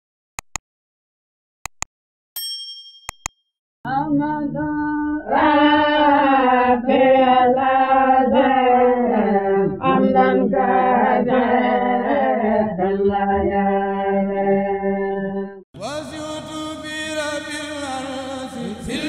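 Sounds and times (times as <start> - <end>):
slow religious chanting: 3.9 - 15.2, 15.8 - 19.0.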